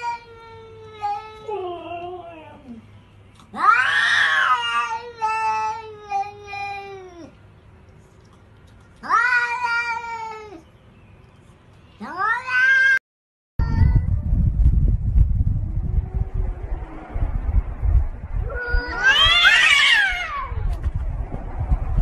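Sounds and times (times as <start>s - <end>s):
cat yowling: 3.5s - 7.3s, 9.0s - 10.6s, 12.0s - 13.0s, 18.4s - 20.7s
low rumbling noise: 13.6s - 22.0s.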